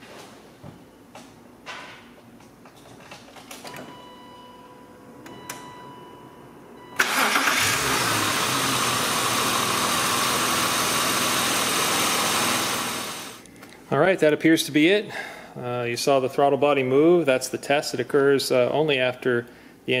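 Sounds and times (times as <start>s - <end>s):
car engine starting and idling: 6.8s - 13.4s.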